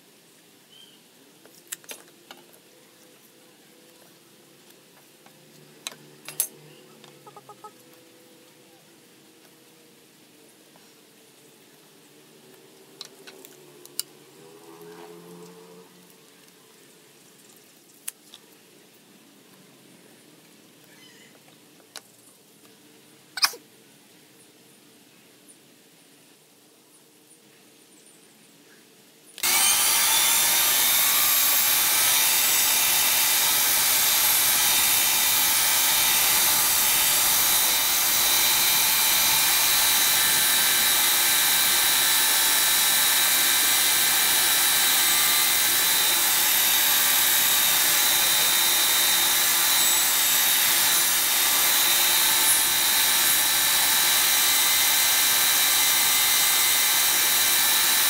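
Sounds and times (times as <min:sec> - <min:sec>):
band saw cutting wood: 0:29.4 - 0:58.0.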